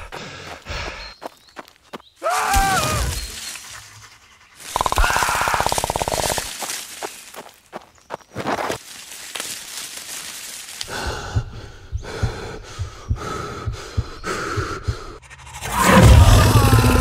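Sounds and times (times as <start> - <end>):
boy panting hard: 10.9 - 15.2
low thuds: 11.1 - 15.2.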